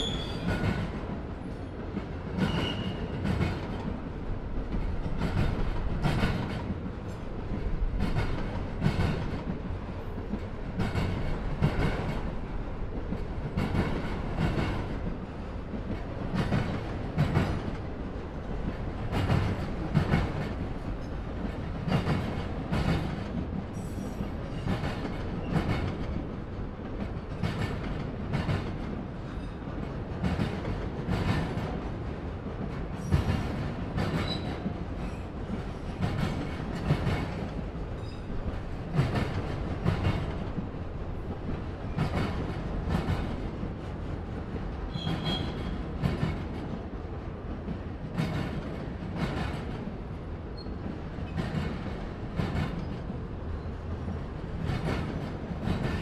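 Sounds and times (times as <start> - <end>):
freight train rolling past: 0.0 - 56.0.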